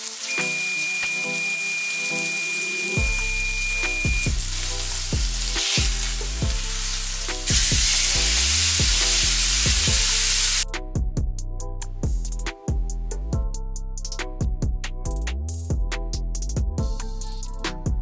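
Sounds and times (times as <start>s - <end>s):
steak sizzling in a pan: 0.0s - 10.6s.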